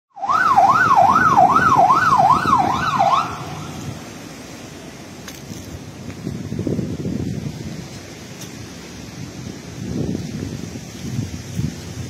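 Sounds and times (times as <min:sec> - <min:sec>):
fire engine siren yelping: 0:00.1 - 0:04.0
wind on microphone: 0:00.5 - 0:04.2, 0:05.4 - 0:12.0.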